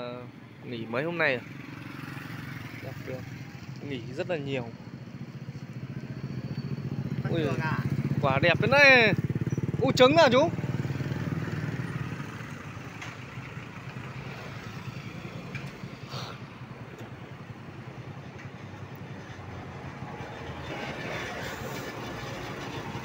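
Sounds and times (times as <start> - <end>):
traffic noise: 0.0 - 23.0
motorbike engine: 0.8 - 23.0.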